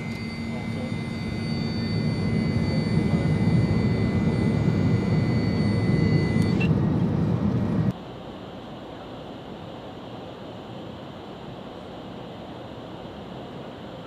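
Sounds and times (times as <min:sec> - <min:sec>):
high whine: 0:00.0 - 0:07.9
jet engines rumbling: 0:00.0 - 0:07.9.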